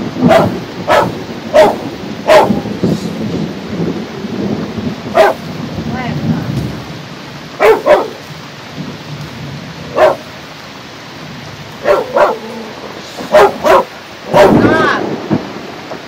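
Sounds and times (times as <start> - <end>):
heavy rain hissing: 0.0 - 16.0
thunder rumble: 0.0 - 16.0
dog barking: 0.2 - 2.7, 5.1 - 5.4, 7.6 - 8.2, 9.9 - 10.3, 11.8 - 12.6, 13.2 - 14.7.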